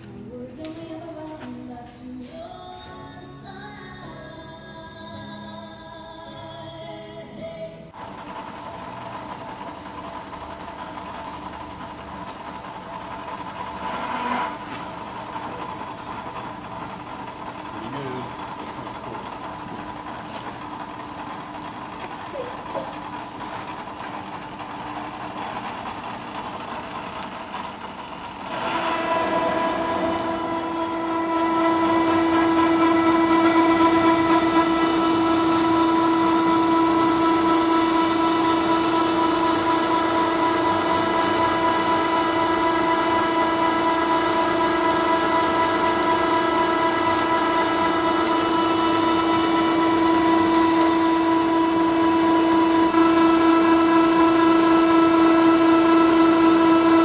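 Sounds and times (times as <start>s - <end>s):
milling drill cutting steel: 8.7s - 20.1s, 24.6s - 57.0s.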